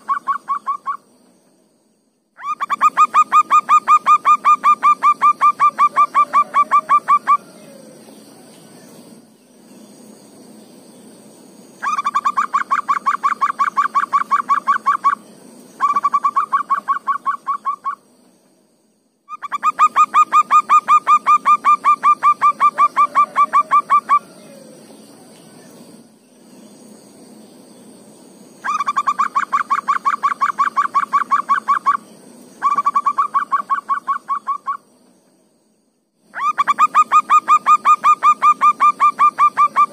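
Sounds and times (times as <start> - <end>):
dove calling rapid notes: 0.0 - 1.0, 2.4 - 7.5, 11.8 - 15.2, 15.8 - 18.0, 19.3 - 24.8, 28.6 - 32.0, 32.6 - 34.8, 36.4 - 39.9.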